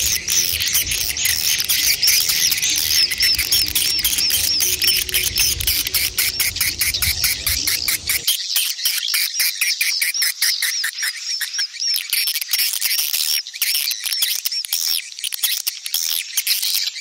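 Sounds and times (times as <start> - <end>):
low rumble: 0.0 - 8.2
swiftlets chirping: 0.0 - 8.2.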